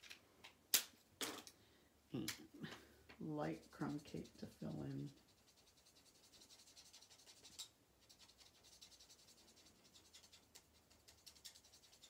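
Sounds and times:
marker scratching on cardstock: 0:03.5 - 0:12.0.

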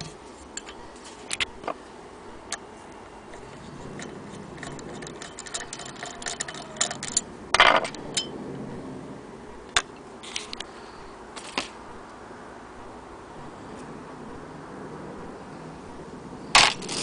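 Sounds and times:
small metallic clicks: 0:00.0 - 0:01.8, 0:03.3 - 0:08.3
metal clatter: 0:03.3 - 0:08.3.

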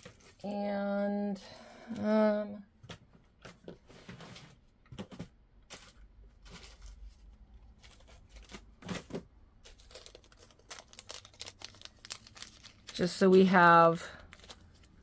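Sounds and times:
beading parts clicking and rustling: 0:09.6 - 0:15.0.

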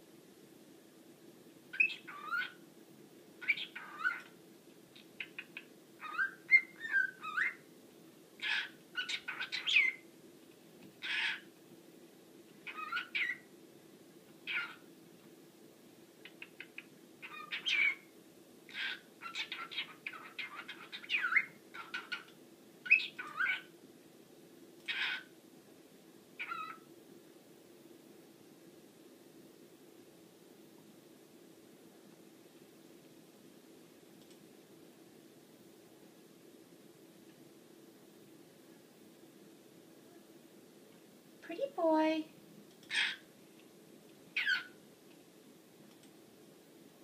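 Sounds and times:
faint low hum: 0:00.0 - 0:47.0
cockatiel whistling and chirping: 0:01.8 - 0:02.6, 0:03.4 - 0:04.3, 0:05.2 - 0:07.6, 0:08.4 - 0:10.0, 0:12.6 - 0:13.4, 0:14.5 - 0:14.8, 0:16.3 - 0:18.0, 0:18.7 - 0:22.3, 0:22.9 - 0:23.7, 0:26.4 - 0:26.8, 0:44.4 - 0:44.8.

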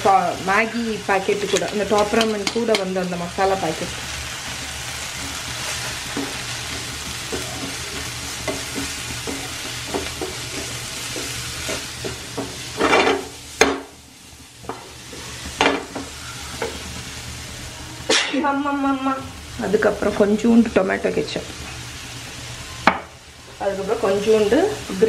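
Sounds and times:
vegetables sizzling in oil: 0:00.0 - 0:25.0
spatula scraping a pan: 0:04.4 - 0:13.3.

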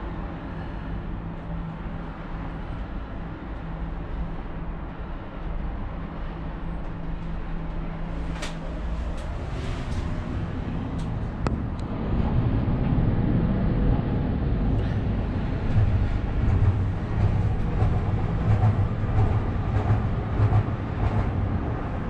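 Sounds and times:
cable car low rumble: 0:00.0 - 0:22.0.

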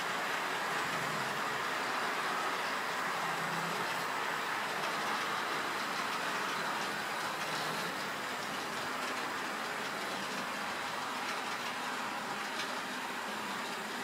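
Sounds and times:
model train whirring: 0:00.0 - 0:14.0
wheels clicking over rail joints: 0:00.0 - 0:14.0.

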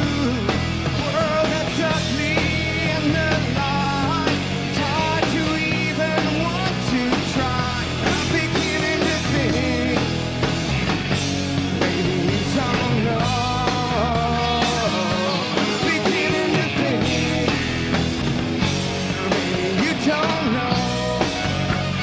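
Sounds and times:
live rock band playing: 0:00.0 - 0:22.0
bending guitar lines: 0:07.4 - 0:22.0.

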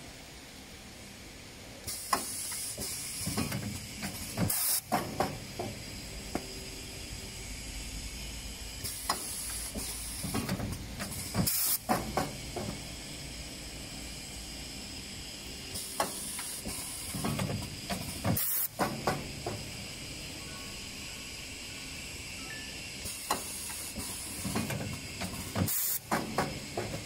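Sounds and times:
steady hiss: 0:00.0 - 0:27.0
loud burst of air: 0:01.8 - 0:13.2, 0:14.0 - 0:20.2, 0:23.0 - 0:27.0
packing machine air hissing: 0:01.8 - 0:27.0.

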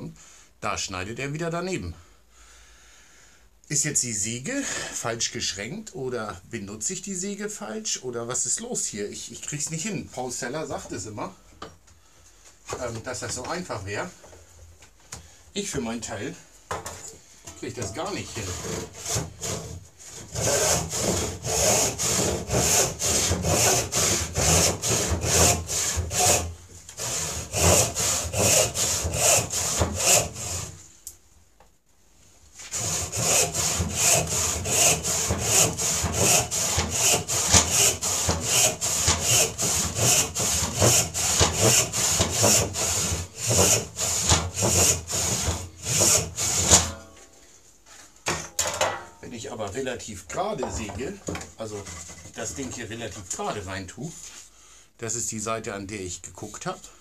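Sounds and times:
hand saw cutting wood: 0:17.7 - 0:30.8, 0:32.6 - 0:47.0.

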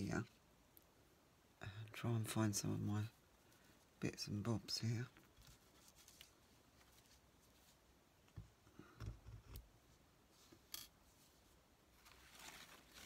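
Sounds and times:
paper rustling: 0:05.2 - 0:07.8, 0:11.1 - 0:13.0.

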